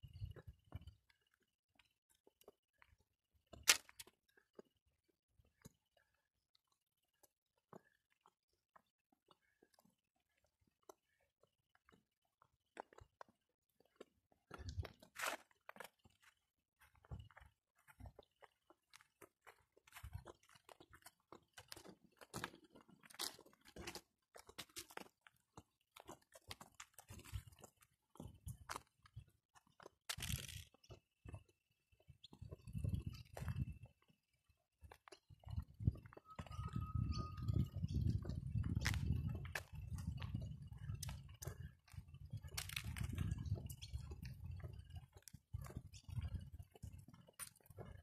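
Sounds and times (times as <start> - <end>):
footsteps crunching: 0.2 - 4.7, 5.5 - 34.2.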